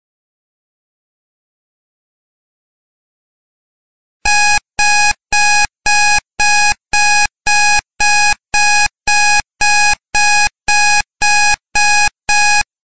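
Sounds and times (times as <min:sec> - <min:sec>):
timer alarm beeping: 0:04.3 - 0:12.7.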